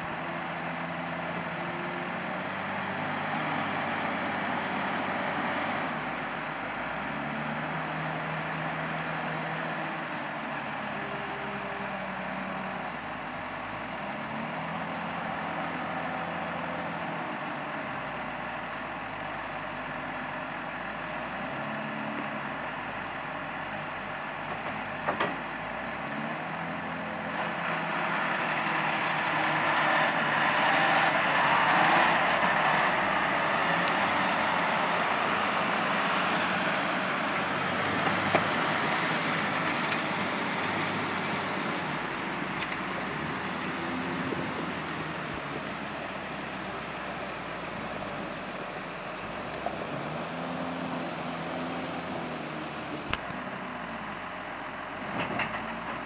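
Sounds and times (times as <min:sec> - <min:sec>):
tractor engine running: 0:22.3 - 0:50.2.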